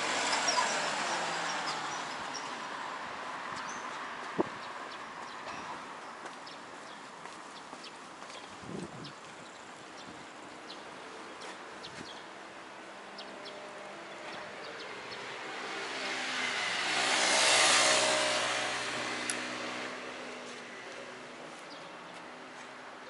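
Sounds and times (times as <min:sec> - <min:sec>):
vehicle passing by: 0:00.0 - 0:04.7, 0:13.1 - 0:22.7
street noise: 0:00.0 - 0:23.0.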